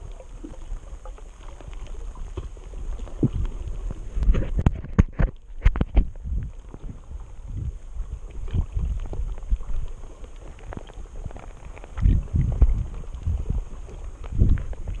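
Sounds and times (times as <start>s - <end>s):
muffled underwater rumble: 0.0s - 15.0s
low underwater thumps: 12.0s - 13.6s.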